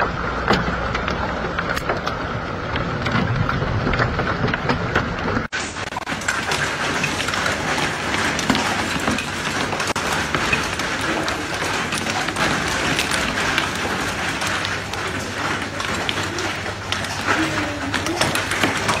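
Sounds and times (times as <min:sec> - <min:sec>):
hailstones ticking on hard surfaces: 0:00.0 - 0:19.0
heavy rain: 0:00.0 - 0:19.0.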